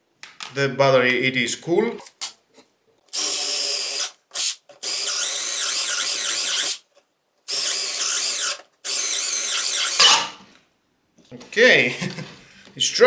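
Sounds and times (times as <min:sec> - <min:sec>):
cordless drill running: 0:03.1 - 0:06.8, 0:07.5 - 0:10.2.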